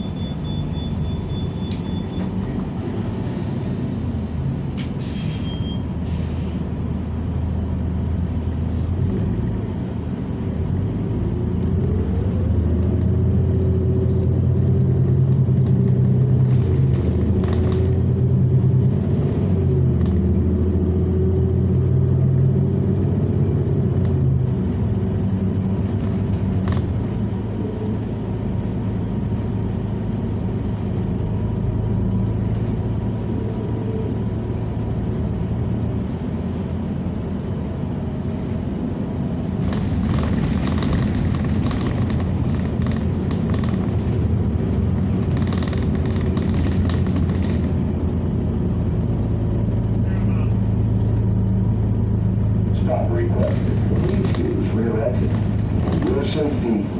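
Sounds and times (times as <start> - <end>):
bus engine hum from inside: 0.0 - 56.9
light knocks and rattles: 39.6 - 48.1.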